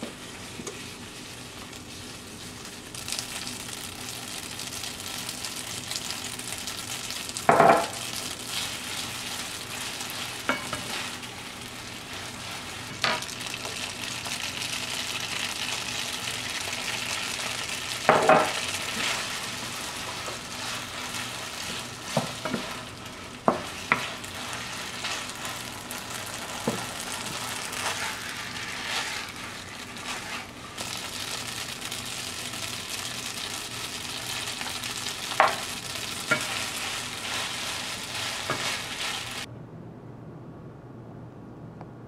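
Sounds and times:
food sizzling in a frying pan: 0.0s - 39.5s
spatula knocking on pan: 18.1s - 18.6s.

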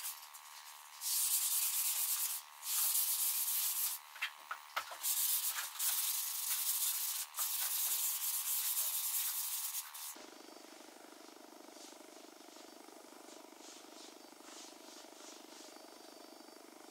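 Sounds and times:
sanding wood by hand: 0.0s - 10.2s.

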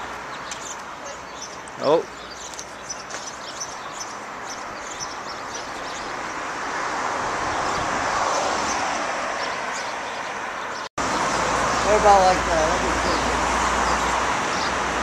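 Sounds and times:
vehicle passing: 3.4s - 15.0s.

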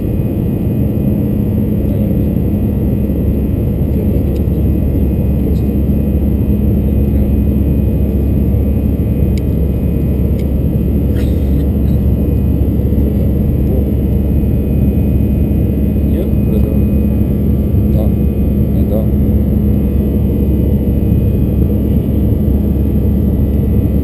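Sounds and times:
airplane cabin engine drone: 0.0s - 24.0s.

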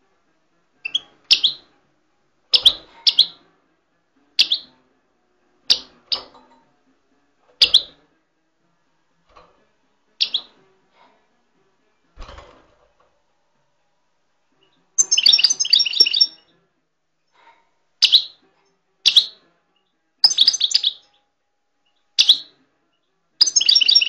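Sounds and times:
small bird chirping: 0.8s - 1.7s, 2.5s - 3.4s, 4.4s - 4.7s, 7.6s - 8.0s, 10.2s - 10.6s, 14.6s - 16.5s, 18.0s - 18.4s, 19.0s - 19.4s, 20.2s - 22.5s, 23.4s - 24.0s.

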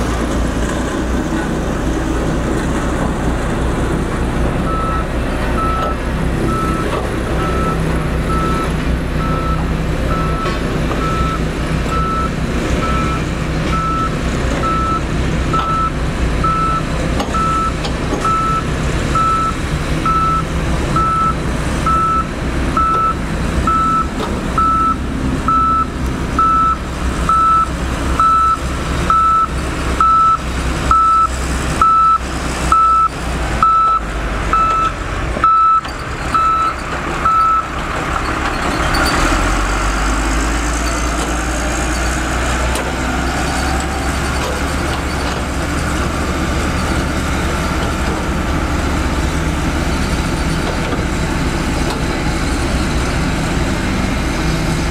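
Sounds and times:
diesel engine running: 0.0s - 54.9s
reversing alarm beeping: 4.7s - 37.7s.

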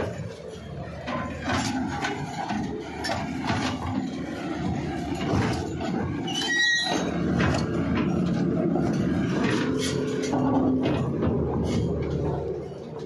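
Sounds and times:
excavator engine running: 0.0s - 13.0s
metal clanks and knocks: 0.0s - 13.0s
brief high squeal: 6.3s - 7.1s.

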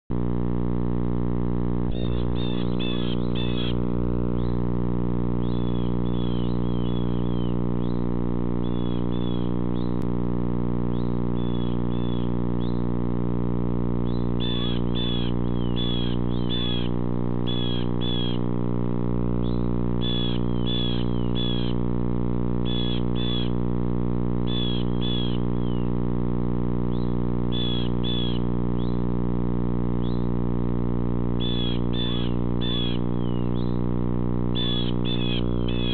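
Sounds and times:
steady electrical hum: 0.1s - 35.9s
small birds chirping: 1.9s - 10.1s, 10.9s - 12.9s, 14.0s - 18.6s, 19.4s - 21.8s, 22.6s - 23.6s, 24.4s - 26.0s, 26.9s - 29.1s, 30.0s - 30.4s, 31.4s - 33.9s, 34.5s - 35.9s.

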